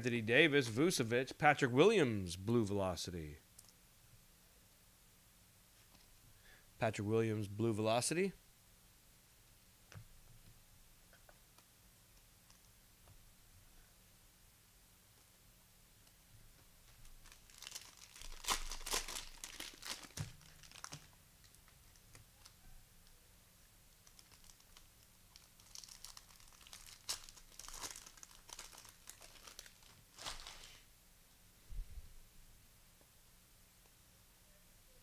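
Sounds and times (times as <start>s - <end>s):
cellophane crinkling and tearing: 16.9s - 22.5s, 24.0s - 30.8s.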